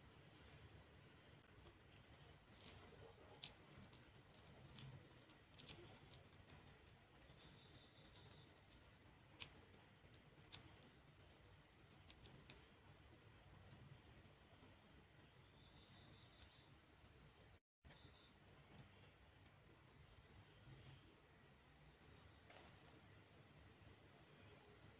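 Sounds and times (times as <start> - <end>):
sticky clicks of hand mixing batter: 1.4 - 14.8.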